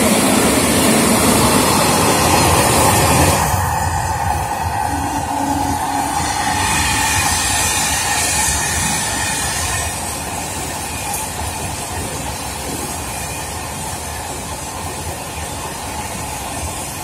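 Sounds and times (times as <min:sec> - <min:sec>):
train wheels on rails: 0:00.0 - 0:17.0.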